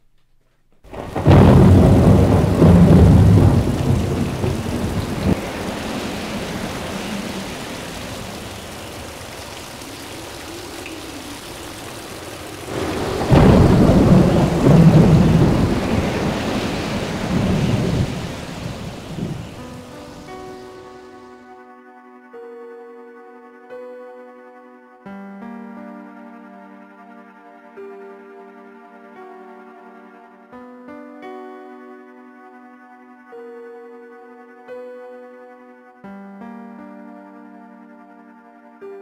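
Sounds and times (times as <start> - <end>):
thunder crash rolling: 0.9 - 20.9
rain hissing: 0.9 - 21.4.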